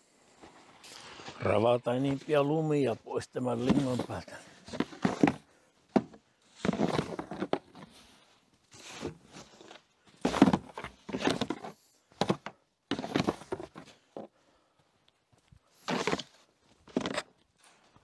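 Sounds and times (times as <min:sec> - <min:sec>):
brush sweeping snow: 0:00.5 - 0:02.6.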